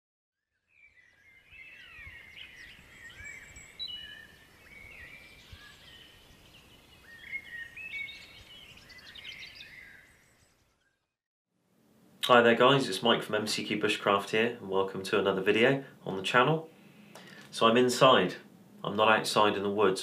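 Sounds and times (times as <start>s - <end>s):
songbirds singing: 0.4s - 11.2s, 13.4s - 20.0s
background hiss: 11.7s - 20.0s.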